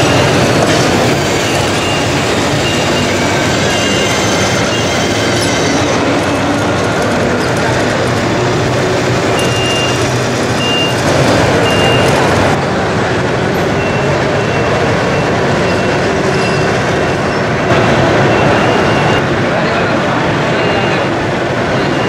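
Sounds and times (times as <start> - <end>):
model vehicles running: 0.0 - 22.0
short high beeps: 9.4 - 10.0.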